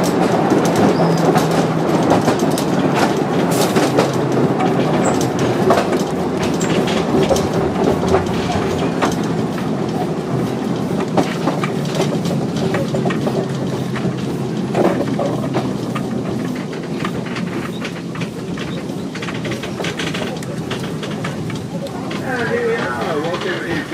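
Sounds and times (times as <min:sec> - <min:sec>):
clicks and rattles: 0:00.0 - 0:23.9
wheels rumbling on rails: 0:00.0 - 0:23.9.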